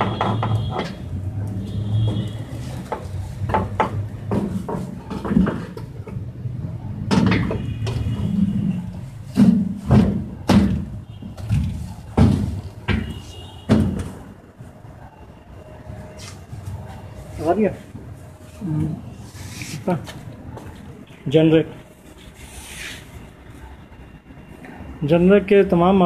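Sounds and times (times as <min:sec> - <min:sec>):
sheet metal knocks and clanks: 0:00.0 - 0:01.0, 0:02.9 - 0:06.2, 0:07.0 - 0:08.4, 0:09.3 - 0:11.0.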